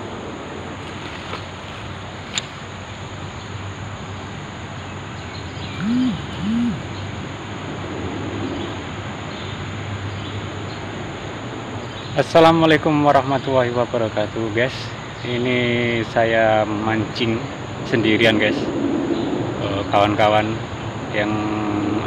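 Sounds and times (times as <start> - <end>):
background rumble and hiss: 0.0 - 10.3
bird cooing: 5.7 - 7.1.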